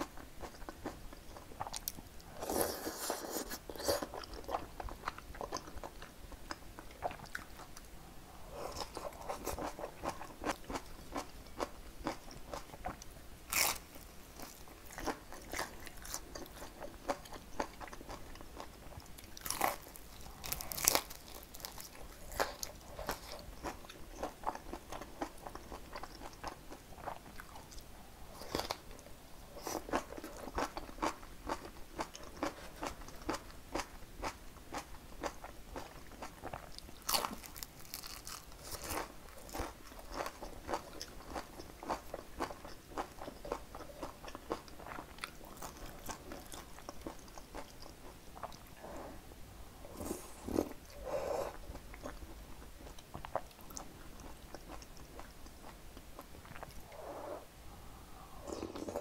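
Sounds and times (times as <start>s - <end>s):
crunchy chewing: 8.5s - 29.0s, 29.6s - 49.1s.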